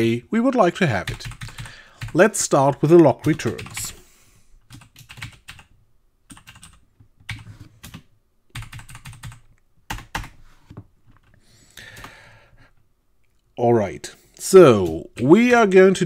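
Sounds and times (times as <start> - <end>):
typing on computer keyboard: 1.0 - 4.0, 4.7 - 5.7, 6.3 - 10.4, 14.7 - 15.3.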